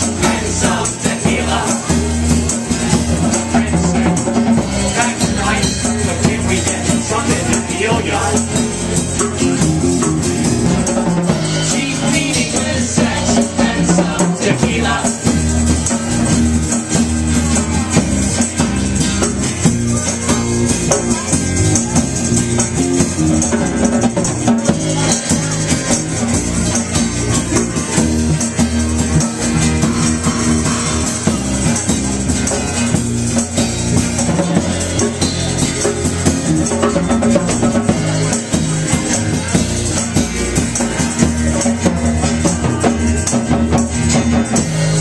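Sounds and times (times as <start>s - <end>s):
voices singing into microphones: 0.0s - 9.6s, 10.7s - 16.2s
acoustic guitar: 0.0s - 45.0s
drums: 0.0s - 45.0s
electric bass: 0.0s - 45.0s
rattling hand percussion: 0.0s - 45.0s.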